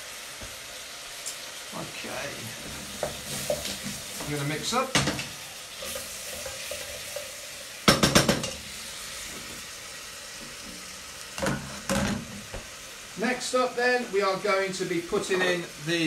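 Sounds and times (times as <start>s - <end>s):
onions sizzling in a pot: 0.0s - 16.0s
wooden spoon knocking on pot: 7.9s - 8.6s.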